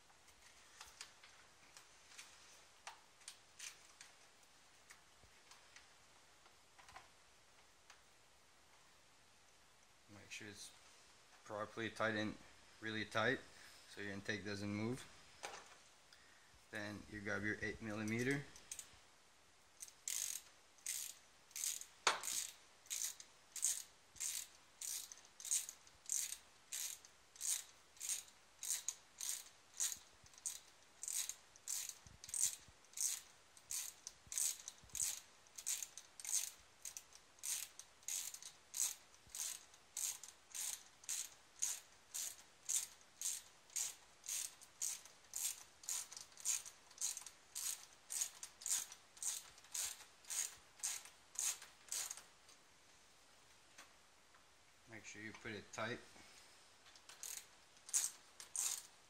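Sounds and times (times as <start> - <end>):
ratchet wrench clicking: 18.6 - 18.9, 19.8 - 52.2, 57.0 - 58.9.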